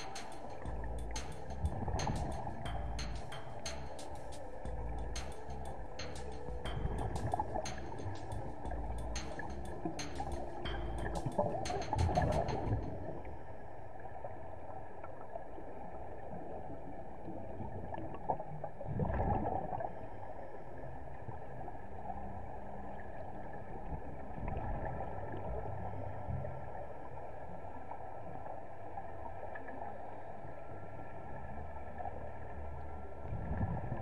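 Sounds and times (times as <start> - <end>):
faint steady tones: 0.0 - 17.7.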